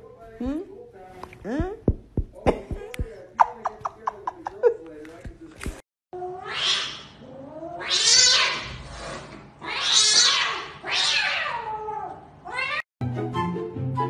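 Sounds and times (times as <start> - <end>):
cat hissing and yowling: 6.2 - 12.8
background music: 13.0 - 14.0.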